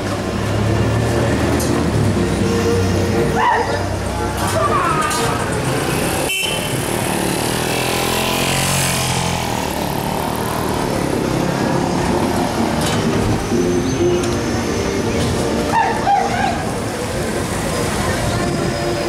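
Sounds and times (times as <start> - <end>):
car and van engines passing: 0.0 - 19.0
vehicle passing close: 3.9 - 19.0.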